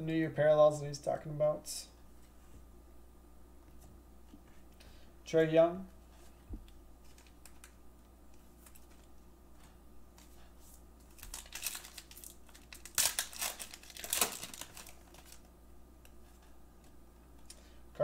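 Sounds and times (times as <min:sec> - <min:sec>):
foil wrapper crinkling and tearing: 0:11.0 - 0:15.5.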